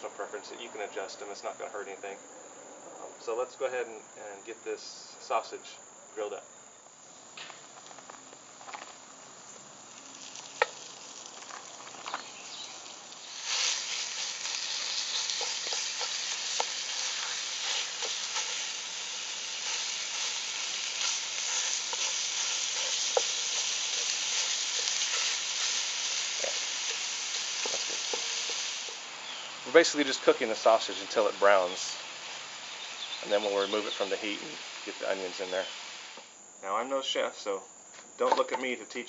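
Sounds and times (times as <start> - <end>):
sausage meat sizzling: 6.8 - 37.1
wooden spoon scraping iron pot: 13.4 - 28.7.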